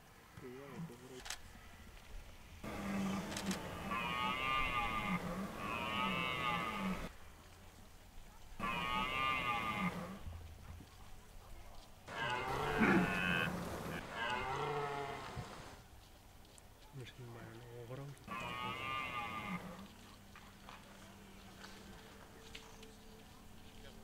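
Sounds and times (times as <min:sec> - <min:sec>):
deer stag roaring: 0:02.6 - 0:07.1, 0:08.6 - 0:10.2, 0:12.1 - 0:15.5, 0:18.2 - 0:19.9.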